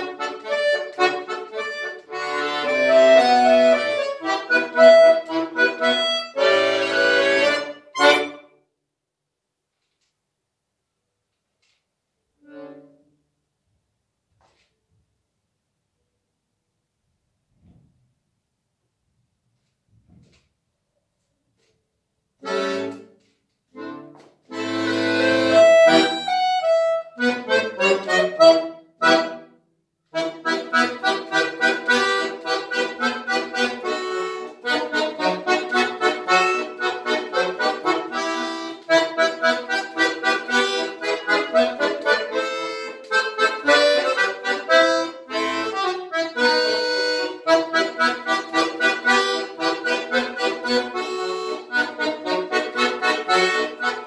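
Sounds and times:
button accordion playing: 0.0 - 8.5, 12.4 - 13.1, 22.4 - 54.0.

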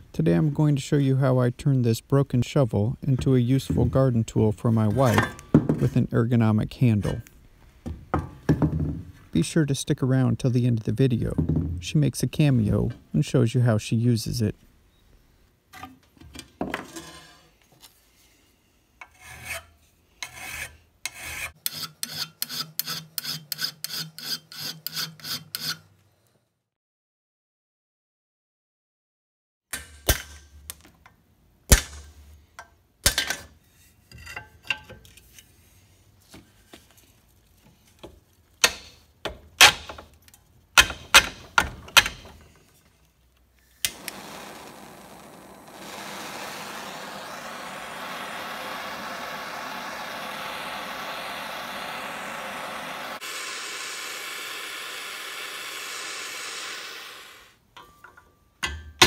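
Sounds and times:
gas torch hissing: 43.8 - 57.6.

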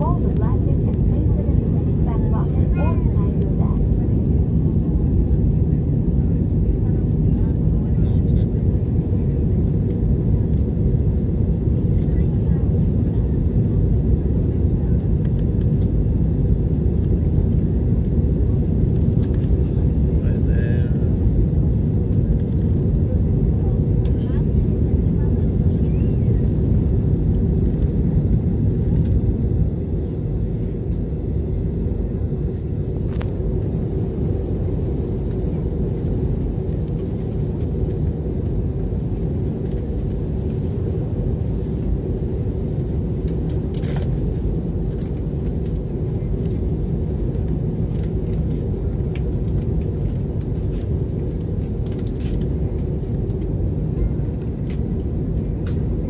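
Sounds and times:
airliner cabin engine rumble: 0.0 - 56.0.

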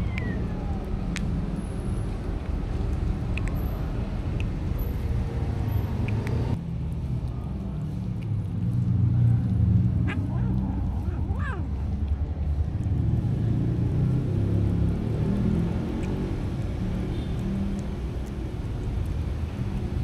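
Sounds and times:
faint clicks: 2.4 - 3.7.

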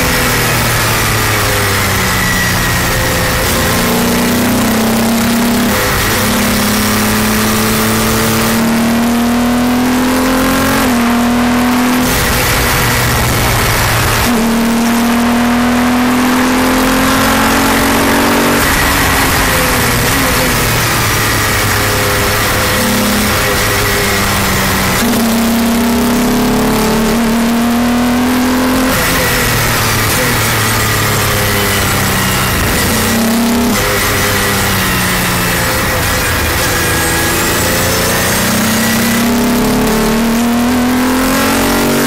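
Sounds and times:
race car engine accelerating: 0.0 - 42.0
heavy wind rush: 18.6 - 25.0.

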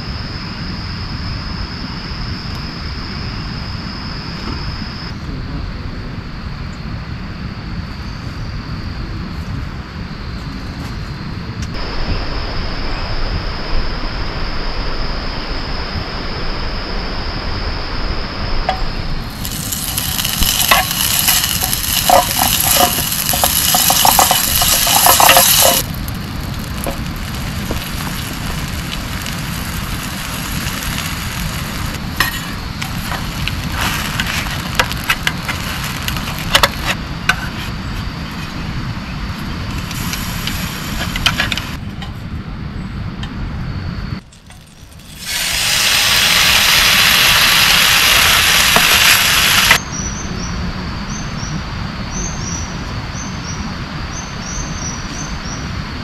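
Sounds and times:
heavy rain pouring: 19.2 - 37.0, 44.7 - 49.8.

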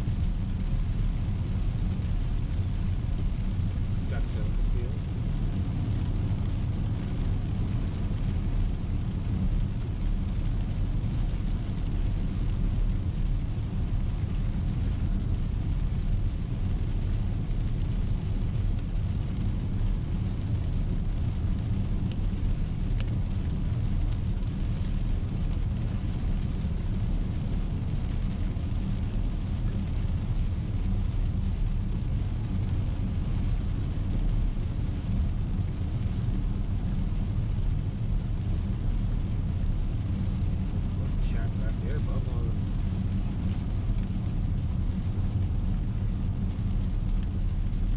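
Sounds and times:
car tyres and engine rumble: 0.0 - 47.9
rain: 0.0 - 47.9.

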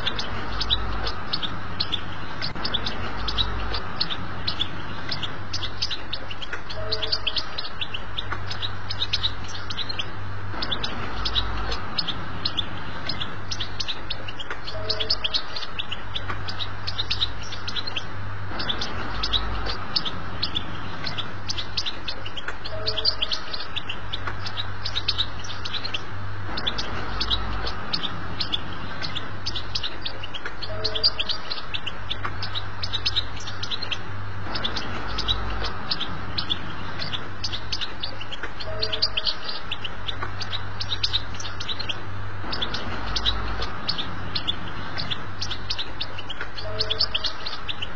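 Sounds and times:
goldfinch twittering song: 0.0 - 47.9.

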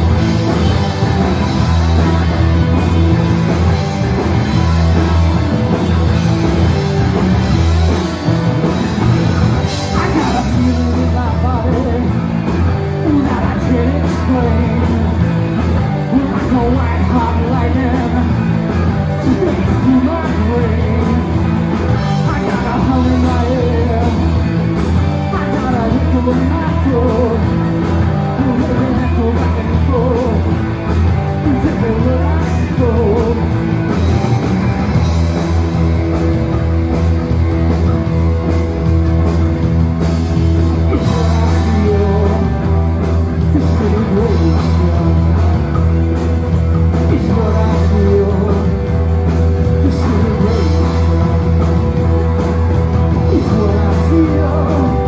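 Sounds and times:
drum kit: 0.0 - 55.0
electric bass: 0.0 - 55.0
electric guitars: 0.0 - 55.0
lead vocal singing: 9.8 - 15.3, 15.9 - 24.5, 31.3 - 33.9, 40.8 - 45.9, 47.0 - 49.0, 49.6 - 52.0, 53.1 - 55.0.

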